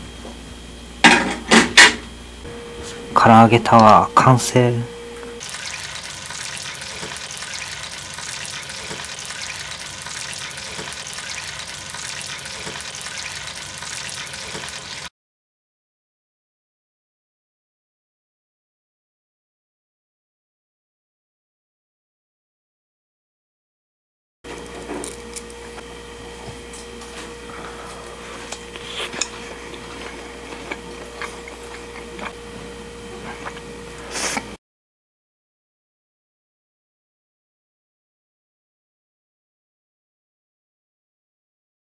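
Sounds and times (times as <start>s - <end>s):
steady hum: 0.0s - 15.1s
oil sizzling deep-frying: 5.4s - 15.1s.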